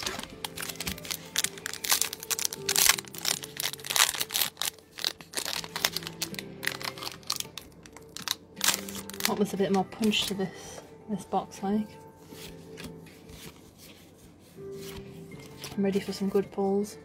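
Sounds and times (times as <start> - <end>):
foil pack crinkling: 0.0 - 10.3
soft background music: 0.0 - 17.0.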